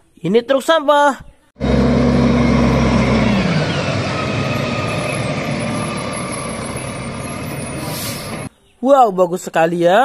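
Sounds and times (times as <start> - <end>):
garbage truck engine running: 1.6 - 8.5.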